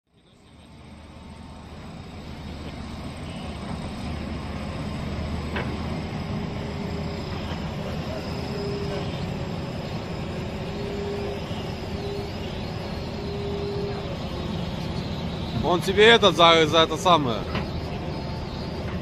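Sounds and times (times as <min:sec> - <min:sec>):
excavator diesel engine rumbling: 0:00.1 - 0:19.0.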